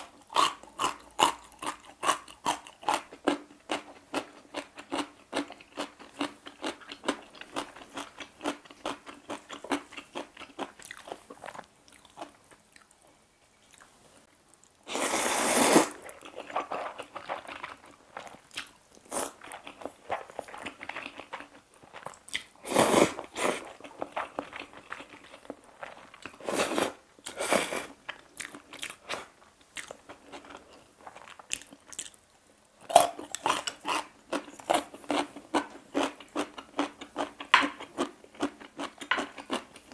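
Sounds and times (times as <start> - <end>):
noodle slurping: 14.9 - 17.6
crisp crunching while chewing: 32.9 - 39.9.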